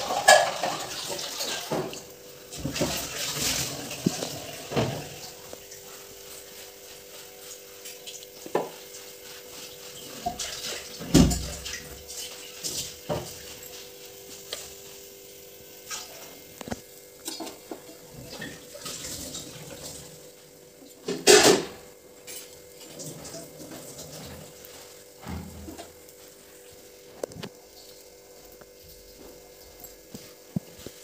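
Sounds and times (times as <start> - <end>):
metal utensils clinking on griddle: 0.0 - 1.9, 21.0 - 24.3
faint steady sizzle: 0.0 - 31.0.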